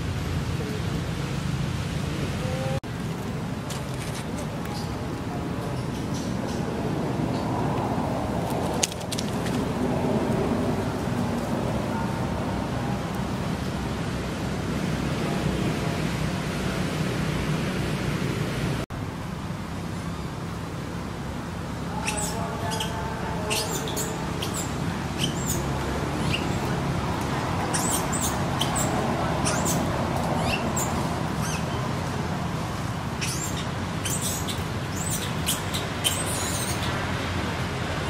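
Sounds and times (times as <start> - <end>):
monkey squeaking and chirping: 21.9 - 26.9, 27.6 - 31.9, 33.1 - 37.0.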